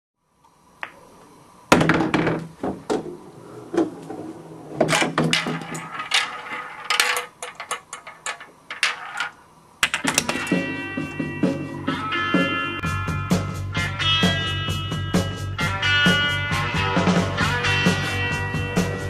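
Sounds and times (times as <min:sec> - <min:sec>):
ball rattling down marble run: 0:04.8 - 0:10.4.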